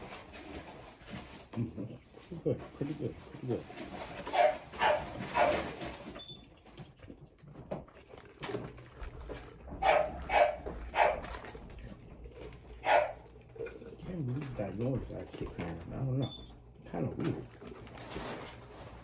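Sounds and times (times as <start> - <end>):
dog barking: 4.3 - 5.7, 9.8 - 11.4, 12.8 - 13.3.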